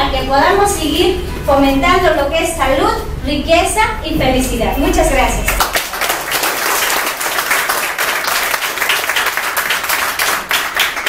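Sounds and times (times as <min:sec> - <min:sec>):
audience applauding: 0:05.6 - 0:11.0.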